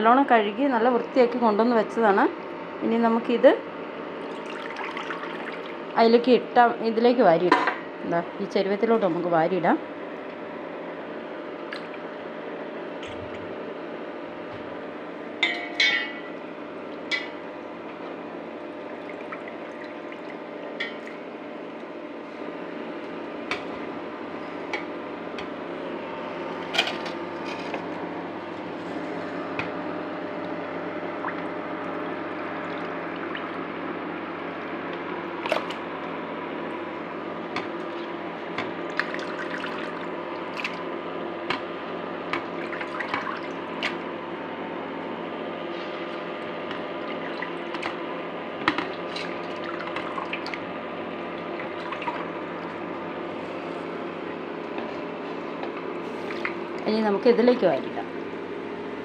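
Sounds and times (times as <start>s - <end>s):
steady background hum: 0.0s - 59.0s
metal bowl clinks: 15.4s - 16.3s.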